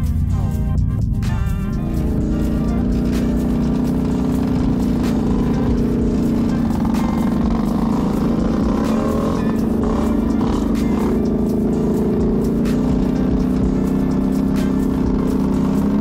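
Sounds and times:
off-road vehicle engine running: 0:00.0 - 0:16.0.

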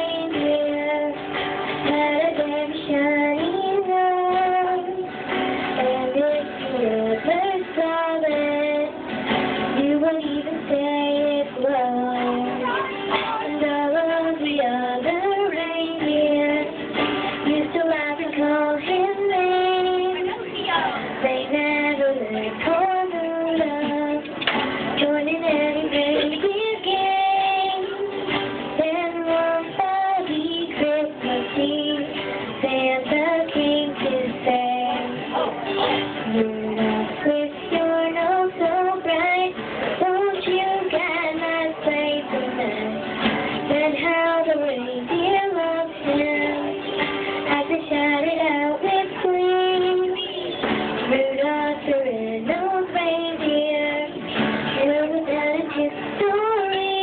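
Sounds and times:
acoustic guitar: 0:00.0 - 0:57.0
woman singing into a microphone: 0:00.0 - 0:57.0.

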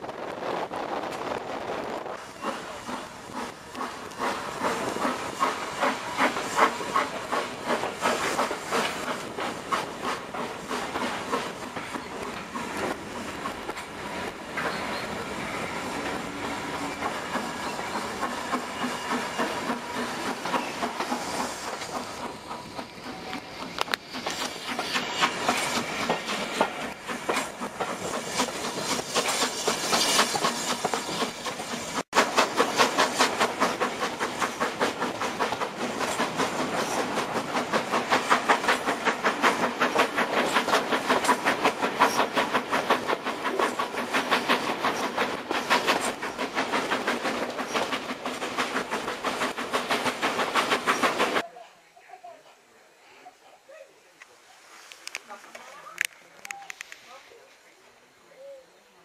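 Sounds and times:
steam locomotive exhaust beating: 0:00.0 - 0:51.4
wheels clicking over rail joints: 0:15.9 - 0:51.4.

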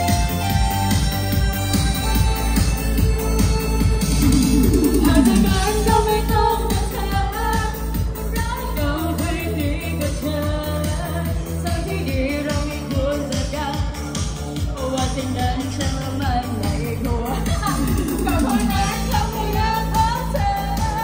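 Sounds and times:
live band dance music: 0:00.0 - 0:21.0
person singing: 0:04.2 - 0:07.6.

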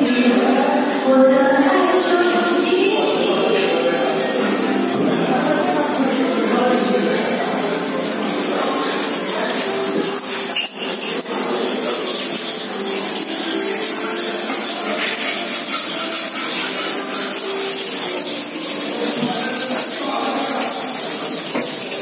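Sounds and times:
tap running into a metal sink: 0:21.2 - 0:22.0.

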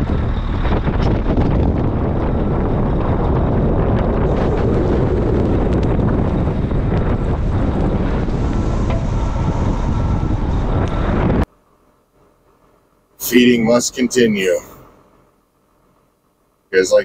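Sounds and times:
diesel engine running: 0:00.0 - 0:11.5
wind buffeting microphone: 0:00.0 - 0:11.5.

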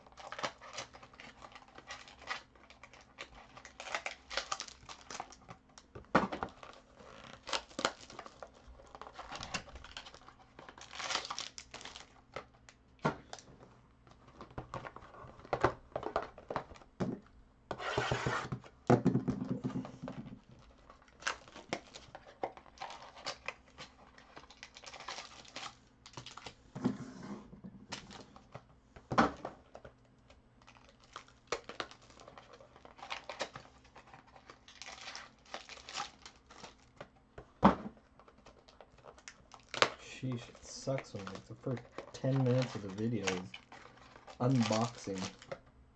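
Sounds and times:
cardboard and foil crinkling: 0:00.0 - 0:05.8, 0:06.4 - 0:13.5, 0:19.9 - 0:26.6, 0:30.6 - 0:37.0, 0:38.2 - 0:45.6
boxes knocking on a table: 0:17.9 - 0:20.3.

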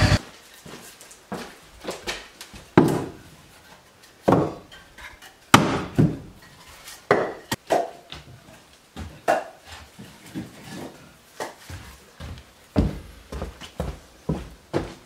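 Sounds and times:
firewood knocking and clattering: 0:04.2 - 0:08.3.

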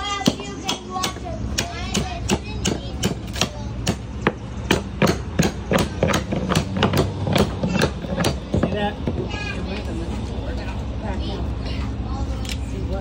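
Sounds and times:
hammer striking chisel: 0:00.2 - 0:09.2.

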